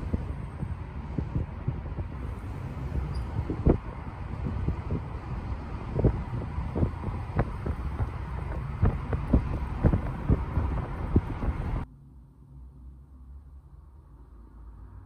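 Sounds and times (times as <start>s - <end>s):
short thumps and buffets: 0.0s - 11.8s
car road and wind noise: 0.0s - 15.0s.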